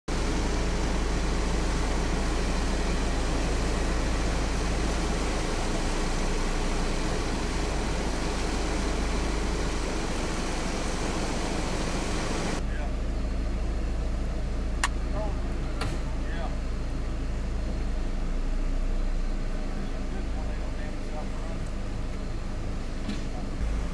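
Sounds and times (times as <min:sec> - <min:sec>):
creek water rushing: 0:00.1 - 0:12.6
low steady hum: 0:00.1 - 0:23.9.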